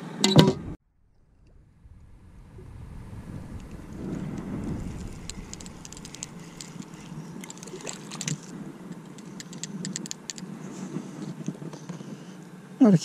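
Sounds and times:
light water splashing: 1.1s - 10.5s
fishing reel clicking: 5.1s - 10.4s.

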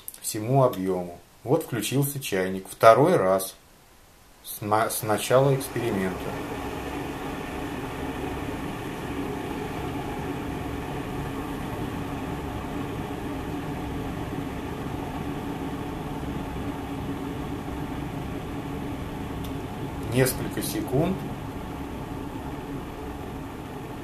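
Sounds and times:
electric kettle heating water: 5.1s - 24.0s.

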